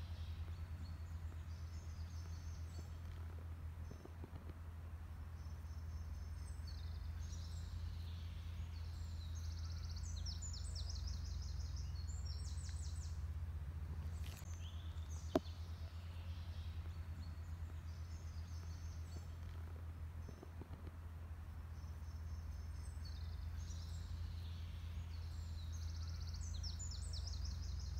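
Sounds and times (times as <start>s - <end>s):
small birds chirping: 0.0s - 27.9s
steady low hum: 0.0s - 27.9s.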